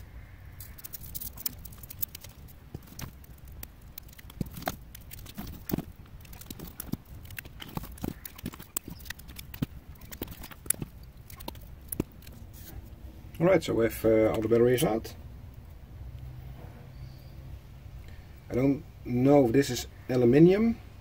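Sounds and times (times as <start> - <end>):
paper wrapping being stripped: 0.6 - 12.7.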